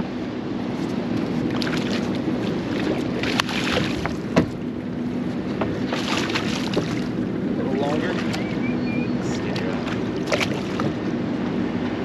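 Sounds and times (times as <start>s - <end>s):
boat engine running: 0.0s - 12.0s
wind and water noise: 0.0s - 12.0s.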